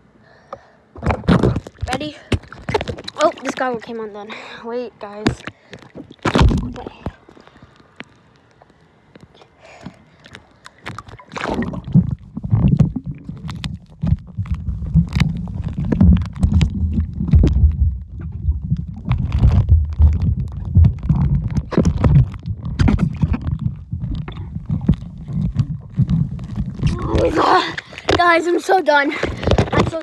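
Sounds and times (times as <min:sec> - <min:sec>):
muffled underwater churning: 0:05.2 - 0:28.4.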